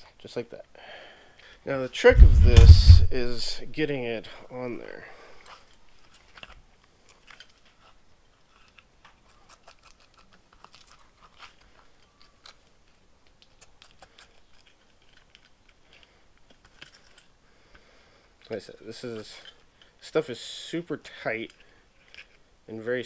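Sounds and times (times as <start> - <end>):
rubber sleeve clicks and rustles: 5.4 - 17.4, 21.4 - 22.4.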